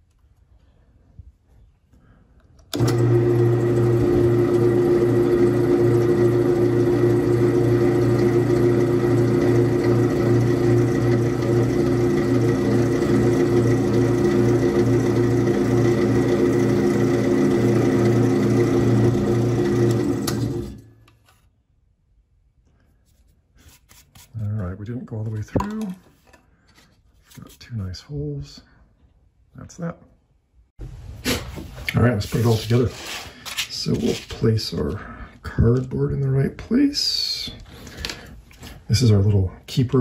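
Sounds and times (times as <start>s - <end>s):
drill press motor hum: 2.7s - 20.9s
drill bit boring into plywood: 2.8s - 20.8s.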